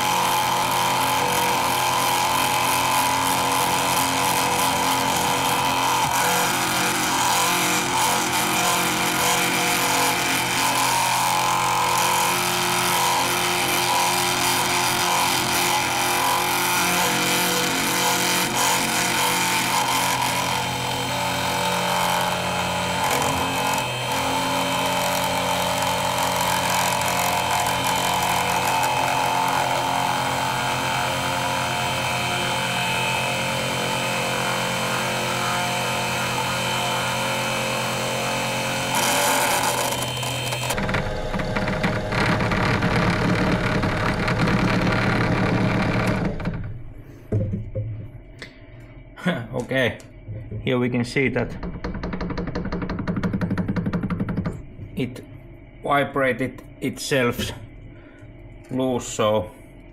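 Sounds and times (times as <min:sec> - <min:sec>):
milling machine motor whine: 0:00.0 - 0:47.0.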